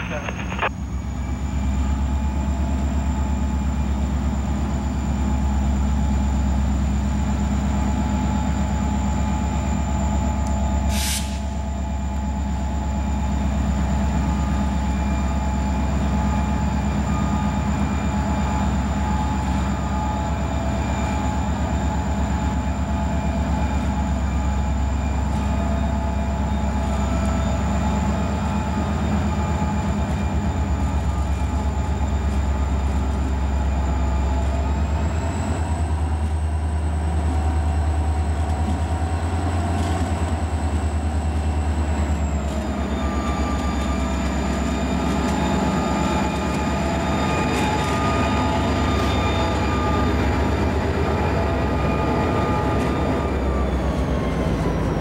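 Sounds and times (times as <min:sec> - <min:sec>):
high whines: 0:00.0 - 0:00.7
diesel locomotive engine rumble: 0:00.0 - 0:55.0
short hiss: 0:10.9 - 0:11.5.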